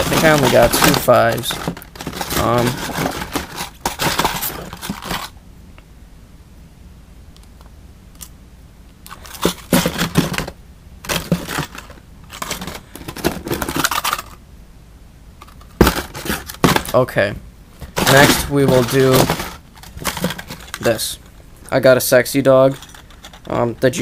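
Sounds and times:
plastic packs rustling and crinkling: 0.0s - 5.4s, 9.1s - 14.4s, 15.5s - 17.2s, 17.8s - 24.0s.

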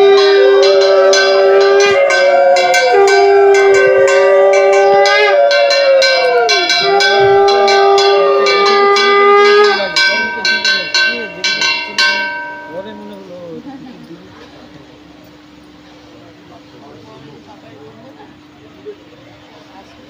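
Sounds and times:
conch shell blown: 0.0s - 10.2s
hand bells ringing: 0.0s - 14.2s.

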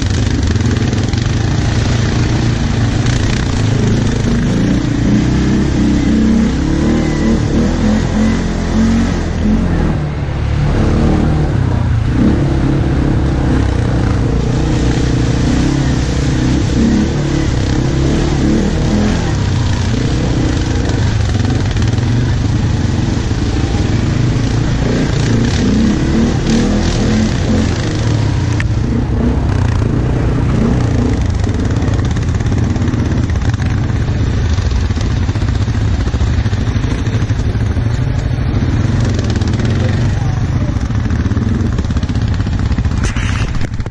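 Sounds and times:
quad bike engine running: 0.0s - 43.9s.

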